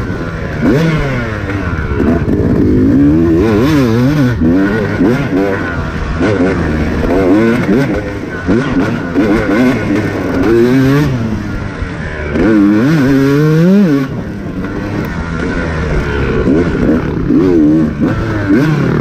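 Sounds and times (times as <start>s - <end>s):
dirt bike engine revving: 0.0s - 19.0s.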